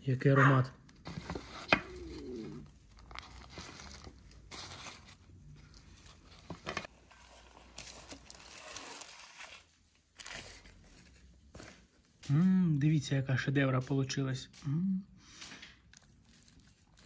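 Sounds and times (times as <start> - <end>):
parchment paper crinkling: 0.9 - 11.9, 15.4 - 17.0.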